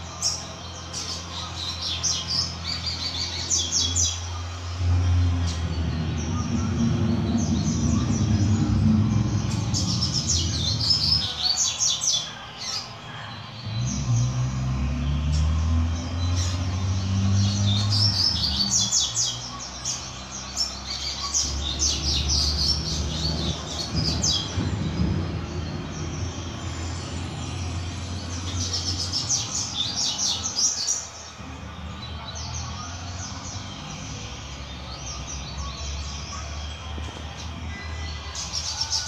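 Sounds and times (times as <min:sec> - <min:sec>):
bird high chirping song: 0:00.0 - 0:39.0
steady low rumble: 0:04.5 - 0:11.4.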